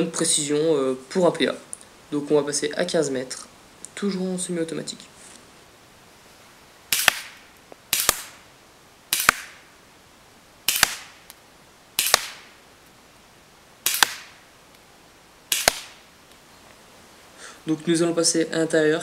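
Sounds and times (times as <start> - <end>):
airsoft pistol shots: 6.9 - 8.4, 9.1 - 9.6, 10.7 - 11.2, 12.0 - 12.5, 13.8 - 14.4, 15.5 - 16.0
sharp snap: 6.9 - 8.4, 9.1 - 9.7, 10.7 - 11.4, 12.0 - 12.6, 13.8 - 14.8, 15.5 - 16.1.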